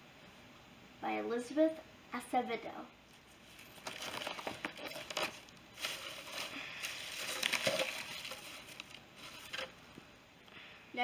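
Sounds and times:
shredded paper rustling: 3.3 - 9.8.

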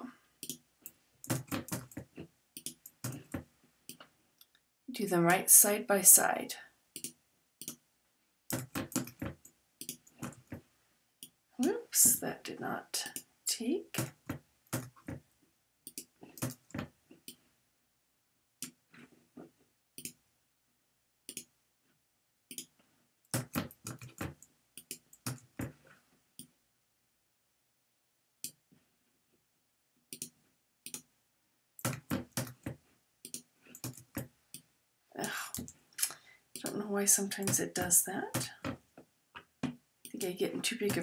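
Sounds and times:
computer mouse clicks: 0.4 - 4.6, 7.0 - 7.8, 8.5 - 10.6, 20.0 - 20.2, 21.3 - 21.5, 22.5 - 22.8, 30.1 - 31.1.

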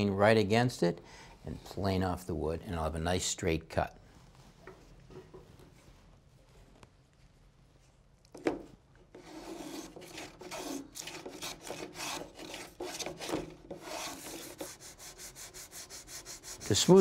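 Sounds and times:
plane scraping wood: 9.1 - 17.0.

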